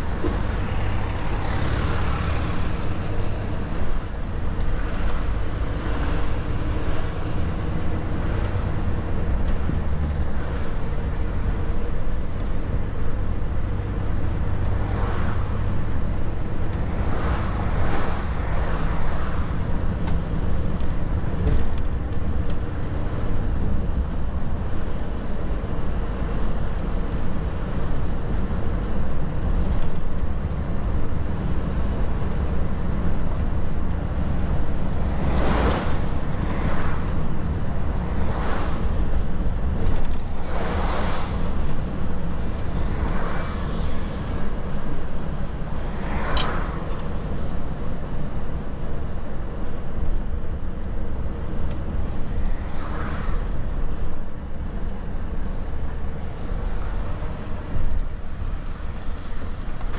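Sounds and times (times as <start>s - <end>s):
vehicles whooshing past: 0.0s - 10.9s, 13.6s - 20.6s, 32.7s - 48.4s, 51.4s - 59.9s
truck engine and tyres rumbling: 0.0s - 59.9s.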